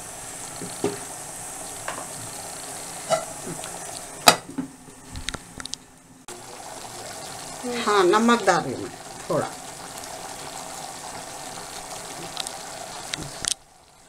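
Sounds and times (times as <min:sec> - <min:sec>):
meat sizzling and bubbling in pot: 0:00.0 - 0:14.0
glass pot lid clinking: 0:03.0 - 0:03.3.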